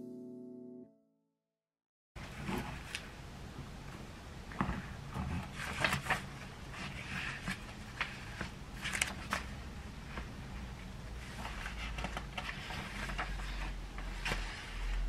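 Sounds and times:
paper pages turning: 0:05.5 - 0:09.6.

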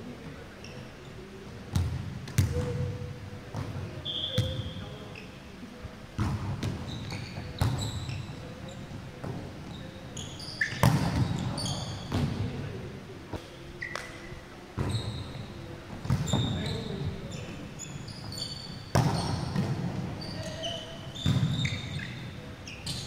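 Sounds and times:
sneaker squeaks on hardwood: 0:04.0 - 0:05.4, 0:06.6 - 0:08.8, 0:09.7 - 0:12.2, 0:13.8 - 0:23.0.

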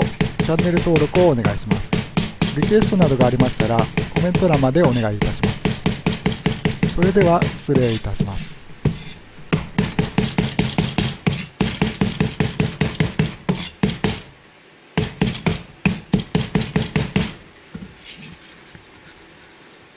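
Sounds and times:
cleaver chopping on plastic board: 0:00.0 - 0:14.3, 0:15.0 - 0:17.4.

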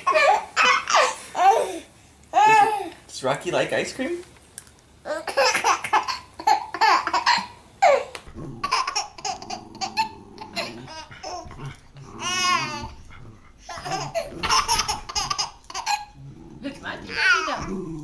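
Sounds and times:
baby laughing: 0:00.0 - 0:02.9, 0:05.1 - 0:16.2.

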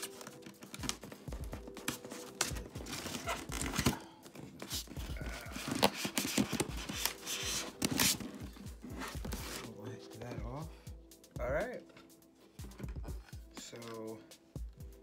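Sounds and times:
styrofoam rubbing and creaking: 0:00.0 - 0:09.8.

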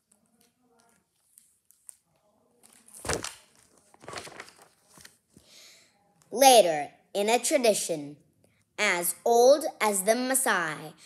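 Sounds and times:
book pages rustling: 0:00.1 - 0:05.5.

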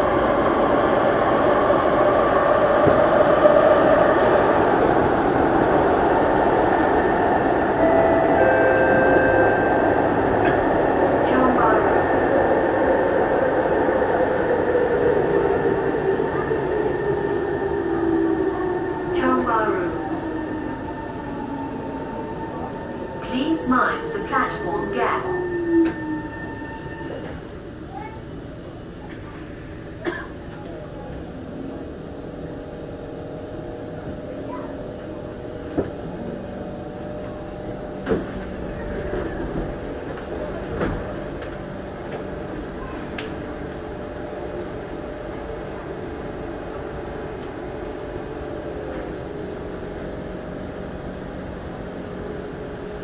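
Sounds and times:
train running rumble: 0:28.6 - 0:53.0.

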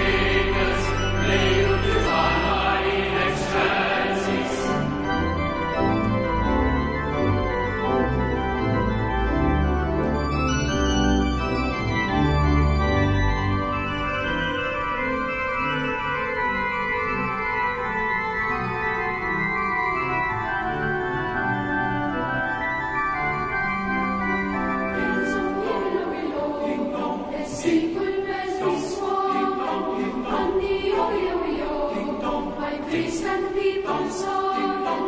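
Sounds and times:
choir singing a carol: 0:00.0 - 0:08.3, 0:24.8 - 0:35.0
pipe organ chords: 0:00.0 - 0:28.4.

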